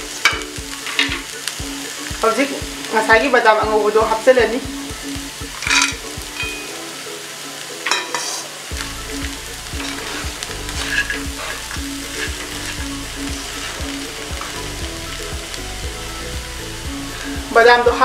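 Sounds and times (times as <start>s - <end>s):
food frying: 0.0s - 18.0s
spatula scraping pan: 7.9s - 8.5s, 9.7s - 14.6s.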